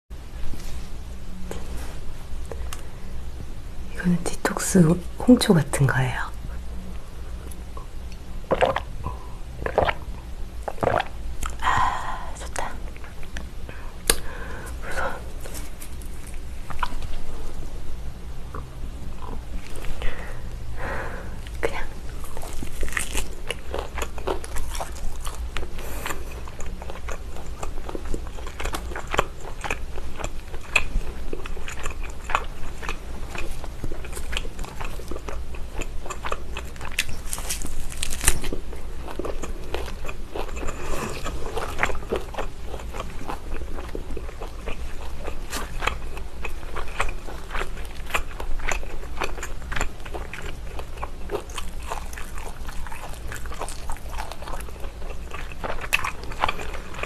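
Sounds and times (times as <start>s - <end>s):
biting and chewing meat: 22.1s - 57.0s.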